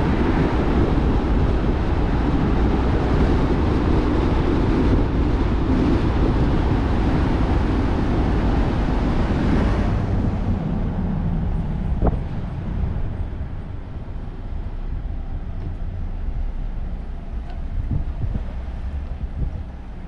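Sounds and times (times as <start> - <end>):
vehicle engine and road rumble: 0.0 - 20.0.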